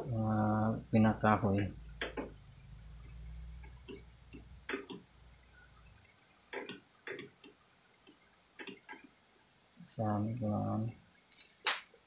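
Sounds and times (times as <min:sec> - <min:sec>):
tools clicking and tapping: 0:01.6 - 0:02.8, 0:03.6 - 0:05.0, 0:06.5 - 0:09.1, 0:10.8 - 0:11.9.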